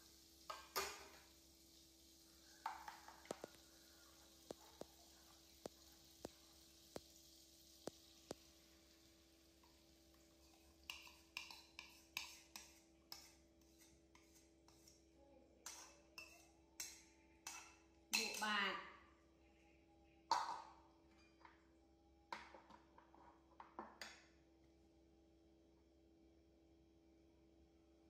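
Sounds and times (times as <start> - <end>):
metal spoon scraping bowl: 10.4 - 15.0, 15.6 - 18.5.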